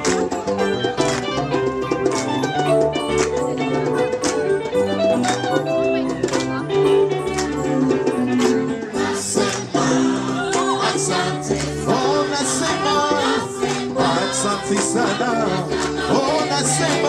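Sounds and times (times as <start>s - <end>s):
guitar: 0.0s - 17.0s
hand drum: 0.0s - 17.0s
gospel choir singing: 8.7s - 17.0s.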